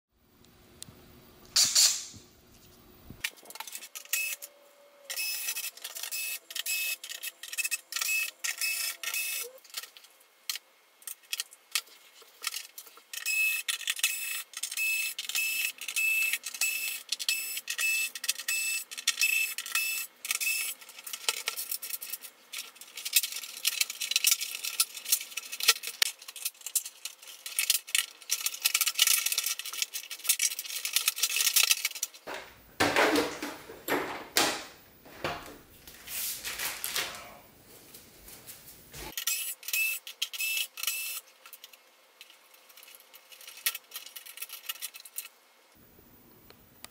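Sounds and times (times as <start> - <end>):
screws and plastic rattling: 5.1 - 32.3, 39.1 - 45.4.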